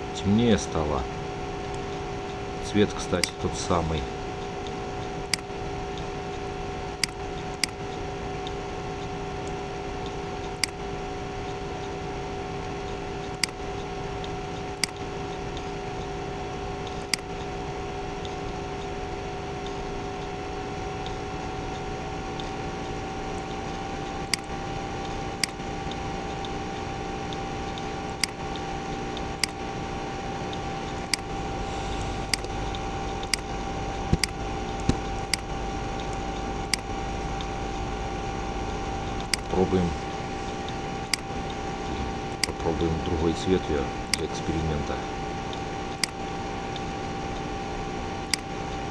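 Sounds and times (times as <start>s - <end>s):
steady computer hum: 0.0s - 48.9s
computer mouse clicking: 10.0s - 10.8s, 29.4s - 29.6s, 34.1s - 36.8s.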